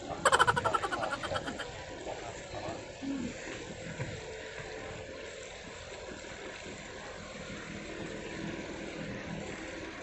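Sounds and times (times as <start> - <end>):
boat engine droning: 0.0 - 10.0
faint steady hum: 0.0 - 10.0.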